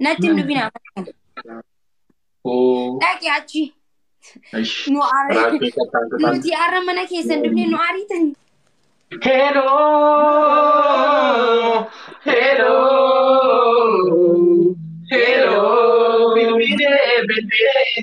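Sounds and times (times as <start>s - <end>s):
man singing unaccompanied: 0.2s - 0.7s, 4.6s - 6.4s, 7.2s - 7.8s, 9.1s - 18.0s.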